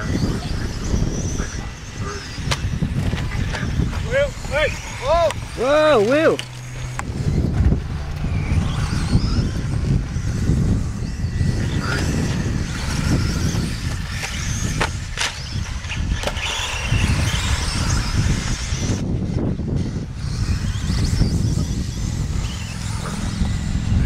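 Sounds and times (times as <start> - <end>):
rc car motor whine: 0.0 - 24.0
low rumble: 2.8 - 14.1.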